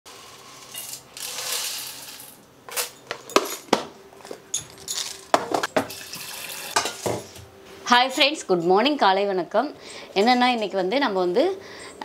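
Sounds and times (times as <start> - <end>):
grains pouring into steel bowl: 0.1 - 2.4.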